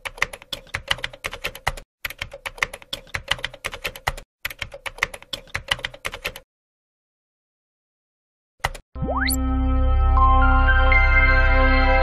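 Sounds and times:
keyboard typing: 0.0s - 6.5s, 8.6s - 8.8s.

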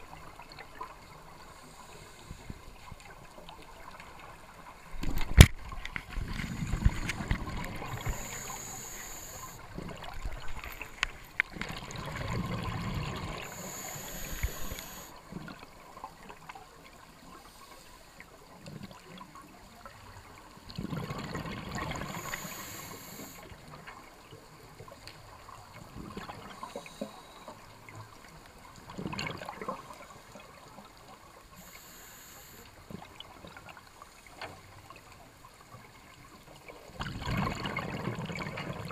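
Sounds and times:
regulator inhale hiss: 1.4s - 2.9s, 7.7s - 9.7s, 13.4s - 15.1s, 22.0s - 23.5s, 26.6s - 27.6s, 31.5s - 32.8s
exhaled bubbles gushing: 6.2s - 10.6s, 11.5s - 15.6s, 20.7s - 22.5s, 36.9s - 38.9s.

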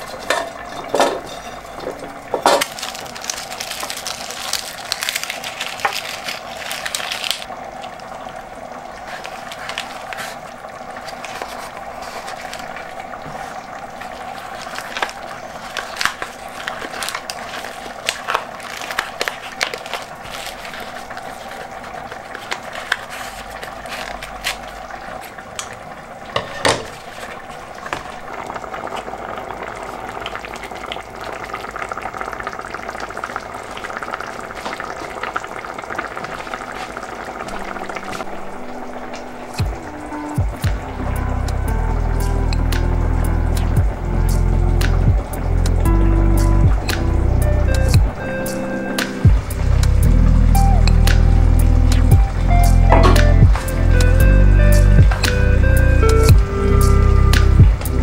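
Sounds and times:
sauce bubbling in a pot: 0.0s - 52.8s
herbs rustling: 2.3s - 7.5s, 9.0s - 25.4s.

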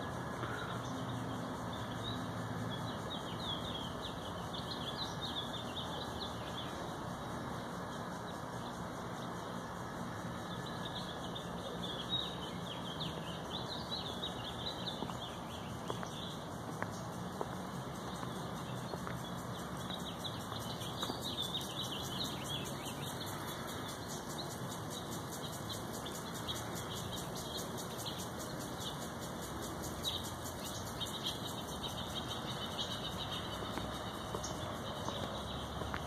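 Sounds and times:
small birds chirping: 0.0s - 9.5s, 10.4s - 36.0s
steady background noise: 0.0s - 36.0s.

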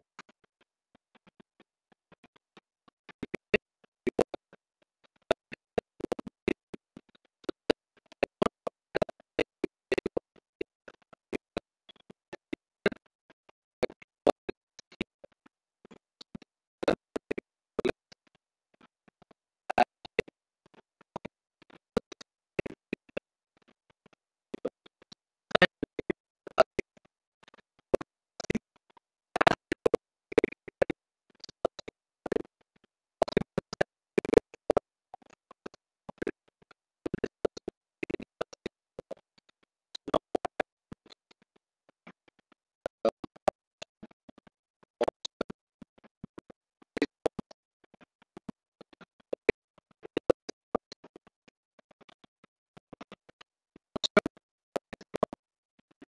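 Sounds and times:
sharp clicks and taps: 29.4s - 32.5s, 33.2s - 36.3s.

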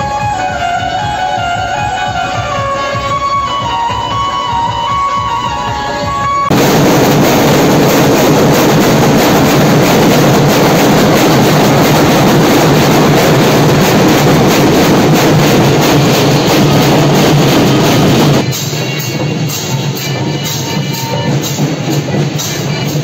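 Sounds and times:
rapid barrel drumming: 6.5s - 23.0s.

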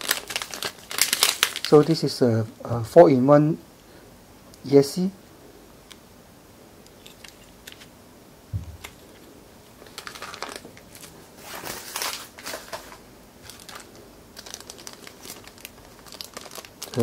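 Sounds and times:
plastic packaging crinkling: 0.0s - 2.0s, 8.6s - 17.0s
thump: 8.5s - 8.8s.

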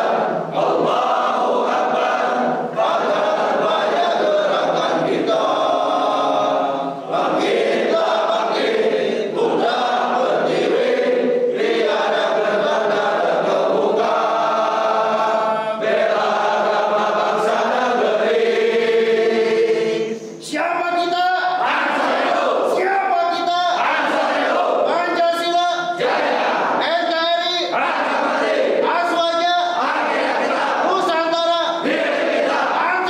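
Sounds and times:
group of men singing: 0.0s - 20.4s, 27.6s - 33.0s.

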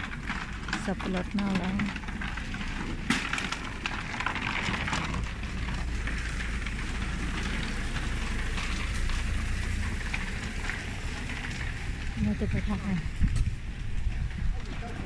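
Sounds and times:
constant low rumble: 0.0s - 15.0s
light rain on wet paving: 0.0s - 15.0s.

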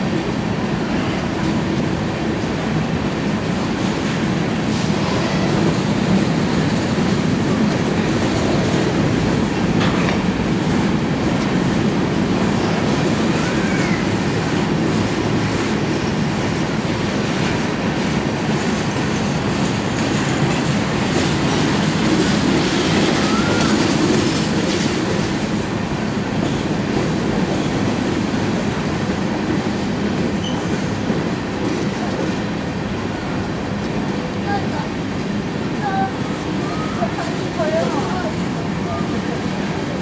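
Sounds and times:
train wheels rumbling on rails: 0.0s - 40.0s
wheel squeal: 30.4s - 30.7s.

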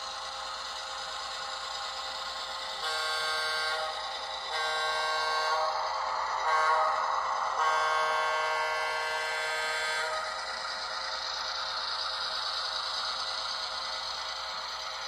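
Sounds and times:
model train horn blasts: 2.8s - 10.6s.

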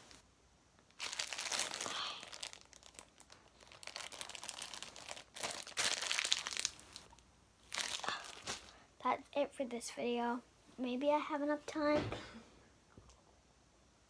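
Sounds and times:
slime crackling and crinkling: 0.8s - 8.8s.

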